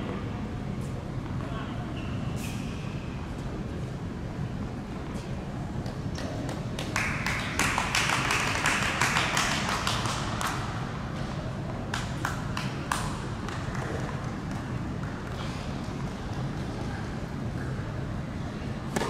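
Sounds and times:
light applause from crowd: 0:06.2 - 0:10.7.

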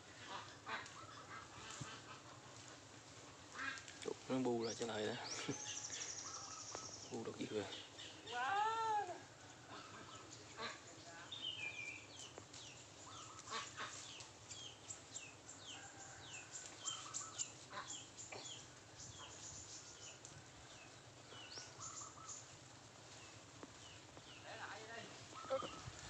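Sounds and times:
bird chirping: 0:04.3 - 0:08.4, 0:09.5 - 0:25.9.

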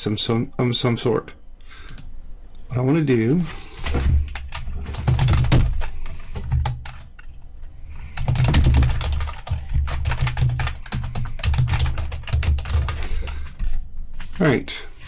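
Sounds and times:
low steady hum: 0:00.0 - 0:15.0
computer keyboard typing: 0:01.9 - 0:02.1, 0:04.3 - 0:07.2, 0:08.0 - 0:13.4.

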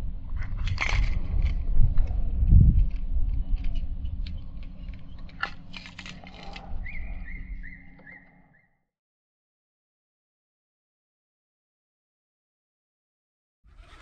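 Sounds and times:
wind buffeting microphone: 0:00.0 - 0:07.8
bird chirping: 0:06.6 - 0:08.8.

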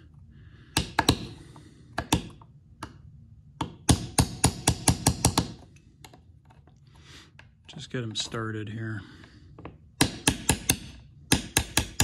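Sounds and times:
hammer tapping steel punch: 0:00.7 - 0:01.4, 0:02.0 - 0:03.0, 0:03.6 - 0:05.6, 0:10.0 - 0:12.0.

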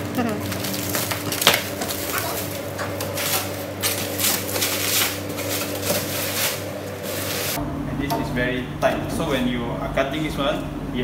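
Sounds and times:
plastic wrap crinkling: 0:00.0 - 0:07.6.

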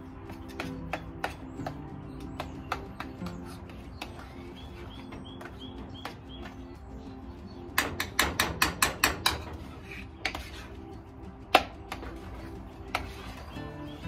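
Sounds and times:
soft background music: 0:00.0 - 0:14.0
sharp knocks: 0:07.8 - 0:09.6.

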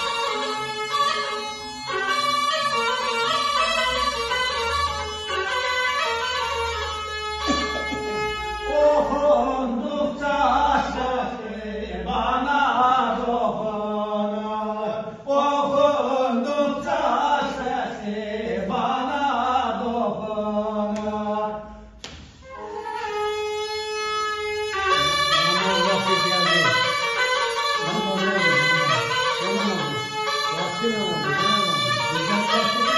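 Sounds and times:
bagpipe playing: 0:00.0 - 0:09.2, 0:22.4 - 0:32.9
man singing unaccompanied: 0:08.6 - 0:21.8, 0:24.9 - 0:32.9.

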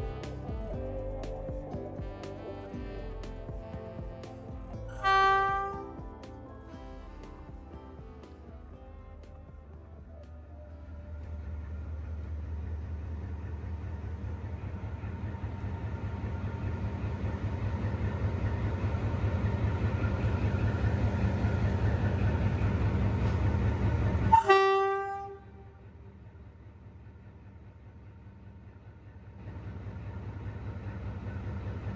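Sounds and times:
locomotive horn blast: 0:00.0 - 0:10.8, 0:24.3 - 0:26.0
locomotive engine rumbling: 0:00.0 - 0:31.9.

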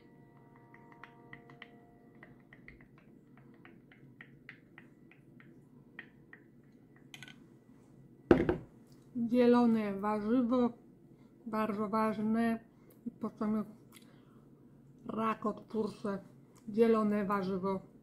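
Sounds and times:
loud knock: 0:08.3 - 0:08.7.

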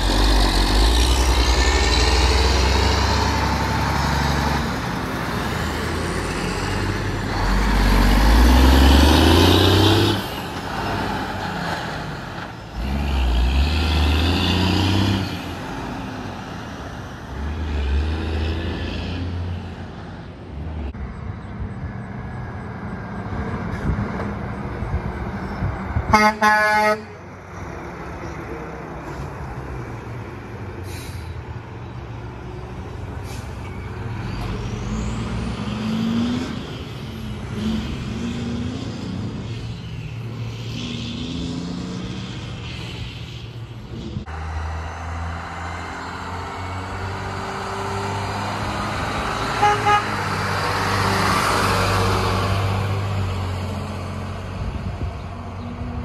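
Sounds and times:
truck engine pulling away: 0:00.0 - 0:25.9, 0:27.5 - 0:43.4, 0:44.0 - 0:56.0
trucks driving past: 0:00.0 - 0:56.0.

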